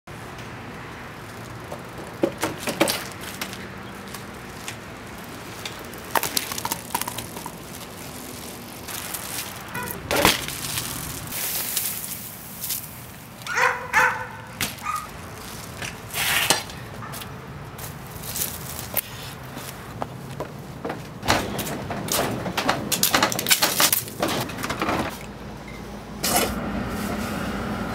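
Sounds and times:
bicycle knocking and clattering: 0:00.2 - 0:25.3
short pitched squeaks: 0:09.7 - 0:10.2.

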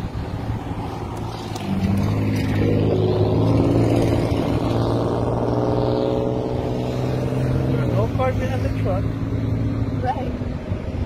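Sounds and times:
cars passing: 0:00.0 - 0:11.0
low traffic engine hum: 0:00.0 - 0:11.0.

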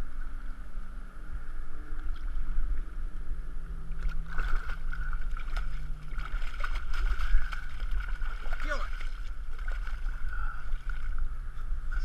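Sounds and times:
low rumble: 0:00.0 - 0:12.0
fish splashing in water: 0:04.0 - 0:11.2.

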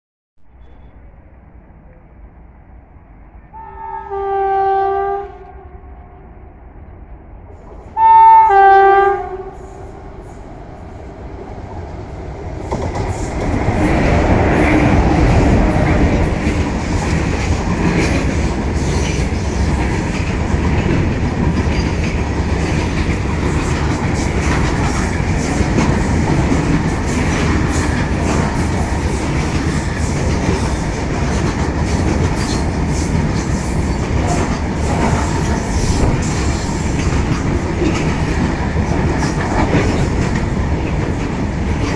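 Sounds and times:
freight train rumbling past: 0:00.5 - 0:41.9
locomotive horn blast: 0:03.5 - 0:06.3, 0:08.0 - 0:09.8.

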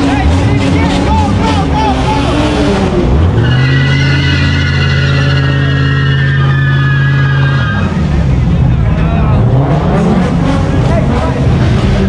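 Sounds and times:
tire squeal: 0:00.0 - 0:08.3
car engine revving: 0:00.0 - 0:12.0.

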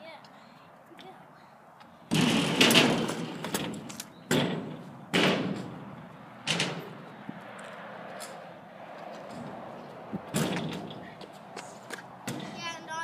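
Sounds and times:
small wheels rolling on concrete: 0:02.1 - 0:04.8.

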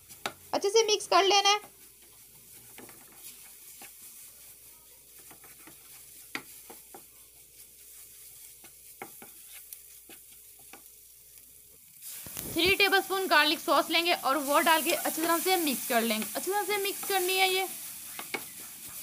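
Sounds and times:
faint sizzle: 0:00.0 - 0:19.0
spatula tapping on pan: 0:00.1 - 0:00.4, 0:05.2 - 0:07.1, 0:08.6 - 0:10.9, 0:18.2 - 0:18.5
spatula scraping a pan: 0:01.2 - 0:13.1, 0:14.4 - 0:19.0.

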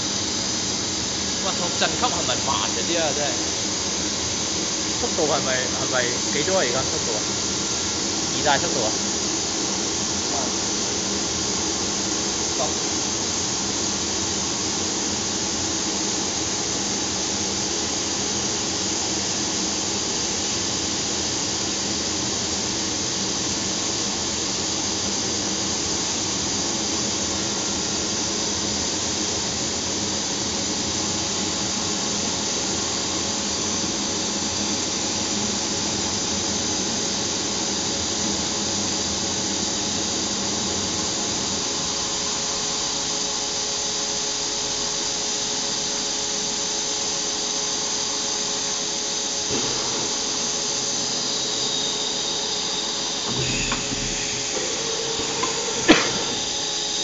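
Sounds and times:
machine motors humming: 0:49.5 - 0:57.0.

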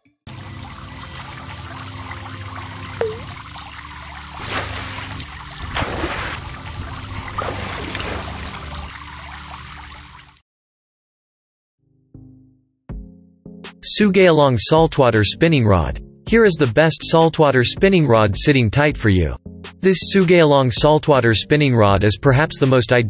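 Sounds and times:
water drip plink: 0:00.3 - 0:10.3
running water trickling: 0:00.3 - 0:10.4
water splashes: 0:00.3 - 0:10.4.

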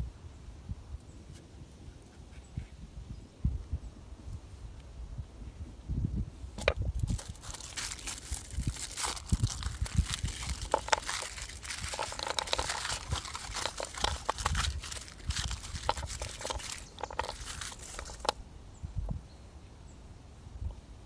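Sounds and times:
crinkling and crunching with clicks: 0:06.6 - 0:18.4.

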